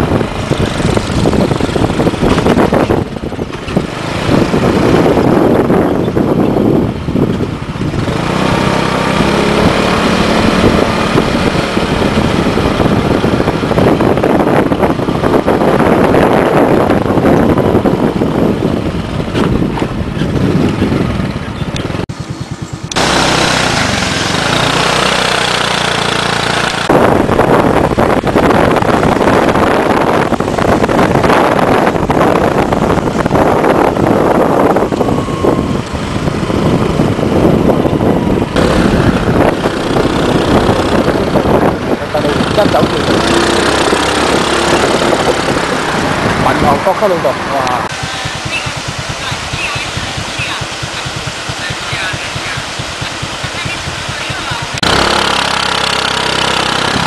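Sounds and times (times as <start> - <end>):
road noise: 0.0 - 57.0
vehicle engine: 0.0 - 57.0.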